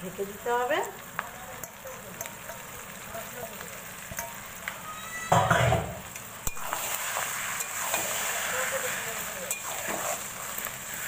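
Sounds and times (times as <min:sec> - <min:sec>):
curry sizzling in a wok: 0:00.0 - 0:11.0
metal spatula scraping a pan: 0:04.2 - 0:11.0.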